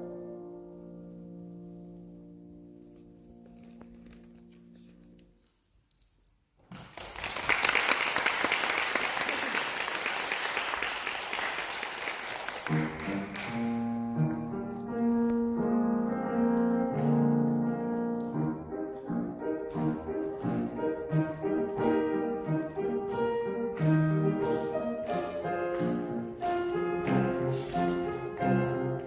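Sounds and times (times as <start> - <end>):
audience applauding: 6.7 - 14.1
instrumental music with held notes: 12.6 - 29.0.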